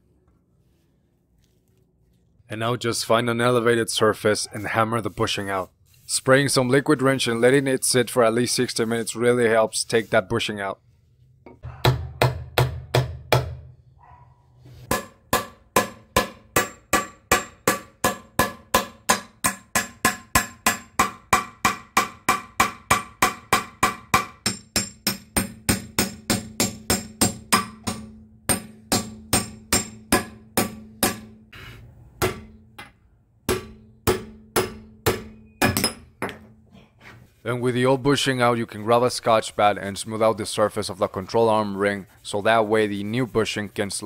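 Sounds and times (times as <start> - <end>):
hammer blows ringing on steel: 14.9 - 31.4, 33.5 - 36.1.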